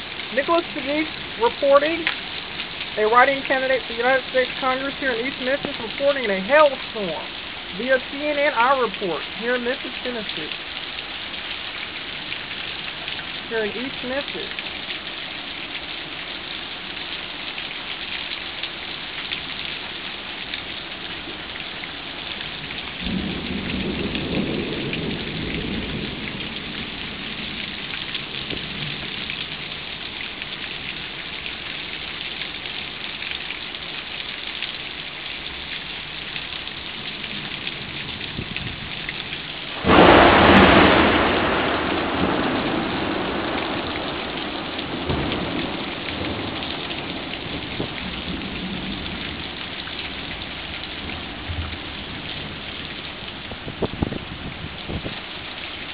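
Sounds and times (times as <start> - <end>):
heavy rain and hail on pavement: 0.0 - 55.9
low roll of thunder: 22.6 - 29.8, 37.0 - 55.2
loud thunderclap: 23.0 - 27.8, 39.7 - 49.4.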